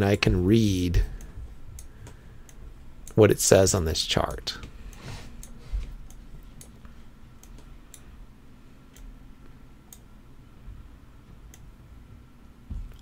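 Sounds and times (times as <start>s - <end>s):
faint room hum: 0.0s - 13.0s
computer mouse clicking: 7.4s - 8.0s.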